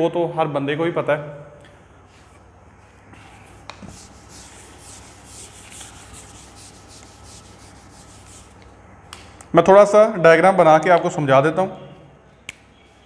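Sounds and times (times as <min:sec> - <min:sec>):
eraser rubbing on whiteboard: 0:03.8 - 0:08.7.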